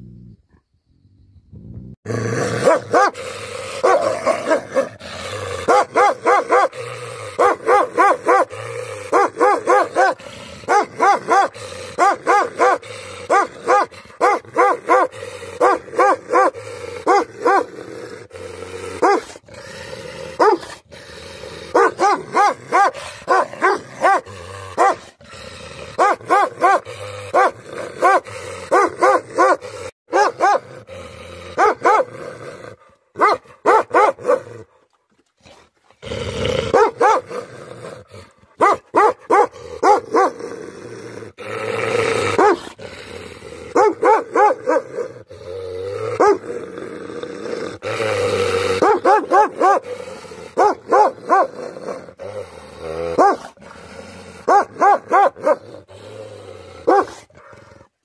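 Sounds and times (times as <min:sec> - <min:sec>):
dog growling: 0:01.6 - 0:33.0, 0:39.3 - 0:57.9
dog barking: 0:02.6 - 0:03.2, 0:03.8 - 0:04.9, 0:05.7 - 0:06.7, 0:07.4 - 0:08.5, 0:09.1 - 0:17.7, 0:19.0 - 0:19.3, 0:20.4 - 0:20.7, 0:21.7 - 0:25.0, 0:26.0 - 0:30.7, 0:31.6 - 0:32.1, 0:33.2 - 0:34.4, 0:36.7 - 0:37.3, 0:38.6 - 0:40.4, 0:42.4 - 0:42.7, 0:43.8 - 0:44.9, 0:46.2 - 0:46.4, 0:48.8 - 0:49.8, 0:50.6 - 0:51.5, 0:53.2 - 0:53.5, 0:54.5 - 0:55.6, 0:56.9 - 0:57.2.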